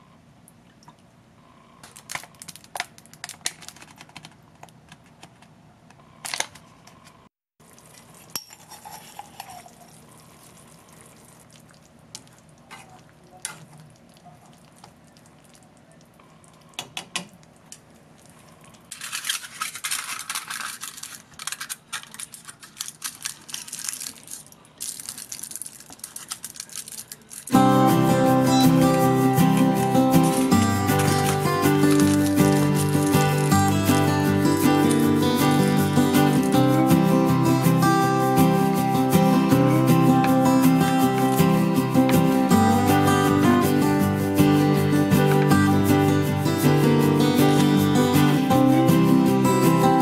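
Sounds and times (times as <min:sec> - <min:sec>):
utensils scraping a saucepan: 0:07.9 - 0:10.1
crackling sizzle: 0:22.5 - 0:50.0.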